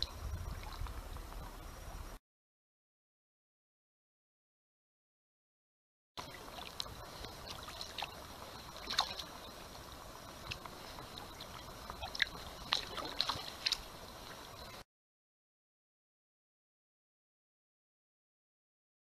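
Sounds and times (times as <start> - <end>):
paddle drips and splashes: 0.0 - 2.0, 6.2 - 14.8
faint steady hiss: 0.0 - 2.2, 6.2 - 14.8.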